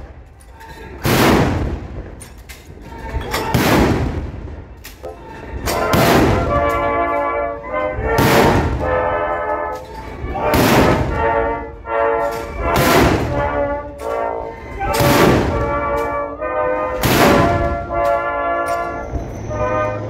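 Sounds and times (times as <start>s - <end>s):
field guns firing: 1.0s - 2.7s, 3.3s - 5.0s, 5.6s - 7.2s, 8.1s - 9.4s, 10.4s - 11.6s, 12.3s - 14.2s, 14.8s - 16.2s, 17.0s - 18.1s
music with held notes: 5.6s - 20.0s.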